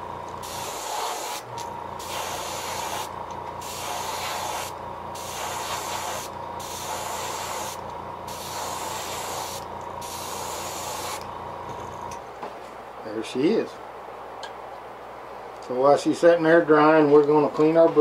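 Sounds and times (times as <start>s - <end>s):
steady low hum: 0.0s - 18.0s
airbrush hissing: 0.4s - 11.3s.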